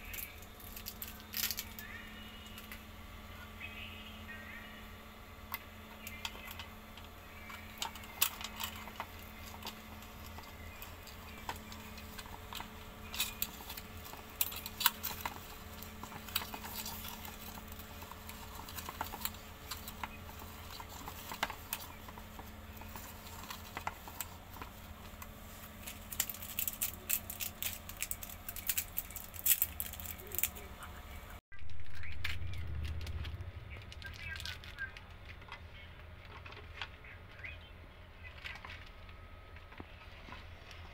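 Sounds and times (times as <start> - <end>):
faint steady hum: 0.0 - 40.9
plastic toy clicks and rattles: 7.7 - 22.2, 25.8 - 30.6, 31.7 - 35.6.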